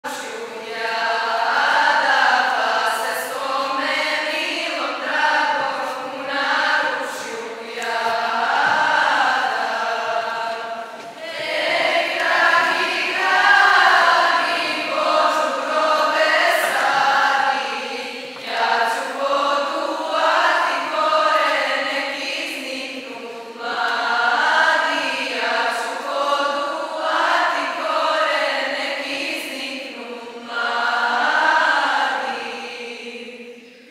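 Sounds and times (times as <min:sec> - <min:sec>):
choir singing: 0:00.0 - 0:33.9.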